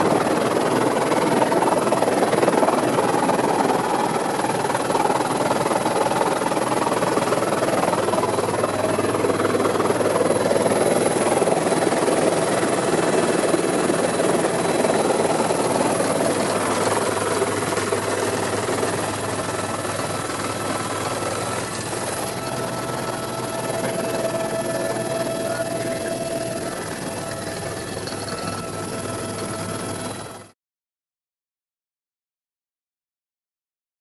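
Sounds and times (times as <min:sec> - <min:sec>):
helicopter rotor and engine noise: 0:00.0 - 0:30.6.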